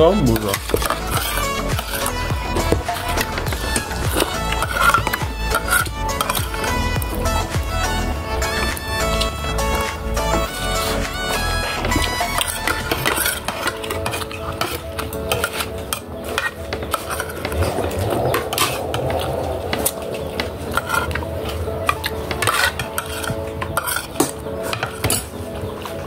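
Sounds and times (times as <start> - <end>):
cutlery clinking on plastic plates: 11.9 - 17.6, 21.8 - 25.4.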